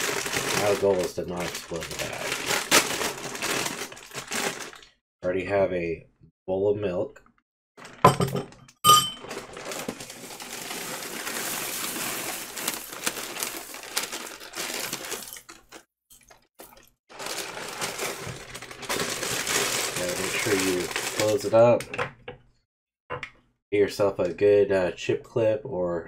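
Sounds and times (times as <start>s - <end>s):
cereal flakes pouring into bowl: 0.0s - 4.8s, 9.3s - 15.8s, 17.1s - 21.5s
plastic bag crinkling: 0.0s - 5.0s, 9.2s - 15.9s, 16.6s - 21.6s.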